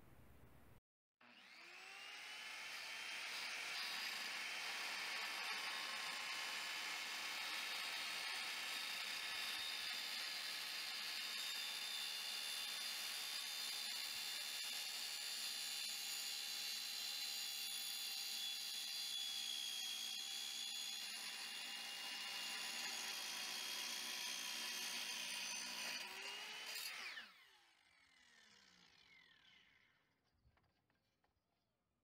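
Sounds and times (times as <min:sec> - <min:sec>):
saw blade spinning down: 0:01.2 - 0:05.6, 0:22.4 - 0:30.0
saw cutting steel with high whine: 0:01.2 - 0:30.1.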